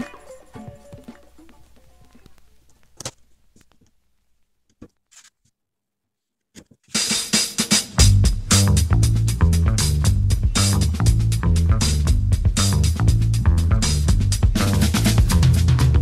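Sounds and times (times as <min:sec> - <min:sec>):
background music: 0:00.0 - 0:02.2, 0:08.0 - 0:16.0
drums: 0:00.0 - 0:02.9, 0:06.9 - 0:16.0
faint clicks: 0:01.0 - 0:04.0
heavy bass: 0:08.0 - 0:16.0.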